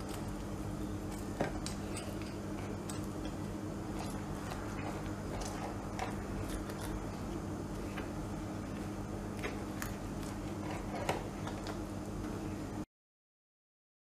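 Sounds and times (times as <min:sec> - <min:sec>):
pizza cutter crunching crust: 0:00.0 - 0:12.1
steady low hum: 0:00.0 - 0:12.9.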